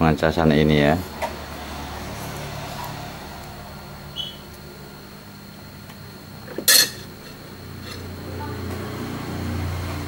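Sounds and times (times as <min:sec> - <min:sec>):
metal tweezers clinking on worktop: 0:06.7 - 0:08.1.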